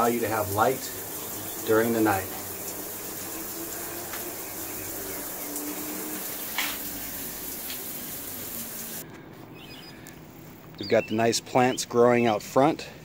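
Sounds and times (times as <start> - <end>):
shower water splashing: 0.0 - 9.0.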